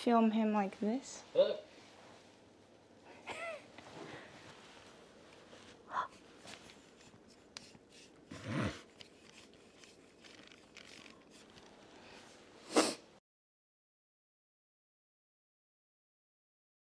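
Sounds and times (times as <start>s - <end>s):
camera handling rustling: 8.9s - 11.8s.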